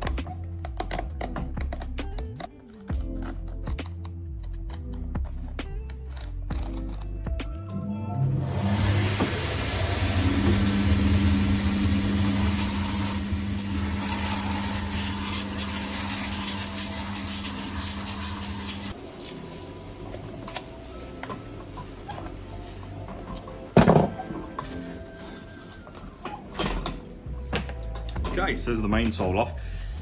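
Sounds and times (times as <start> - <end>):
machine motor hum: 8.2 - 18.9.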